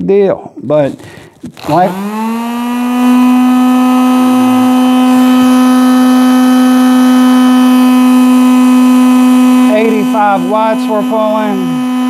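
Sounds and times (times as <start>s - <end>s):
power tool motor whining: 0.9s - 12.0s.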